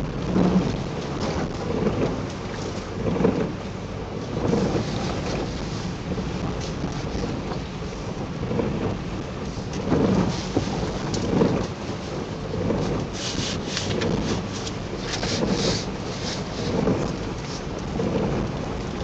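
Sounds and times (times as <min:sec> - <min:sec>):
car road rumble: 0:00.0 - 0:19.0
rain suit crinkling and rustling: 0:04.2 - 0:08.0, 0:09.4 - 0:19.0.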